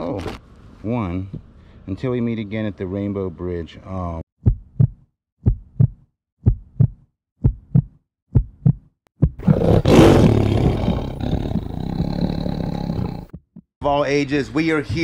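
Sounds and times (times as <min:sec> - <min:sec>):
heartbeat-like double thumps: 0:04.4 - 0:09.5.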